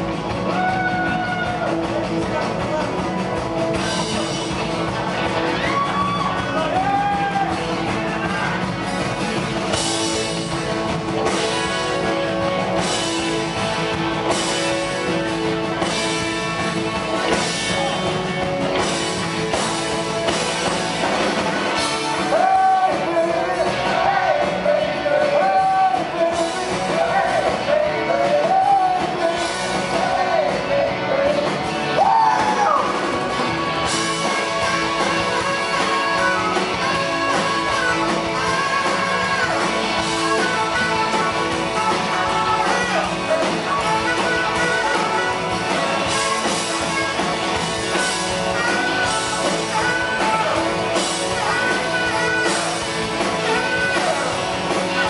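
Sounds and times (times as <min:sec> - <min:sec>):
live rock band playing: 0:00.0 - 0:55.0
person singing lead vocal: 0:19.5 - 0:55.0
saxophone lead: 0:32.0 - 0:55.0.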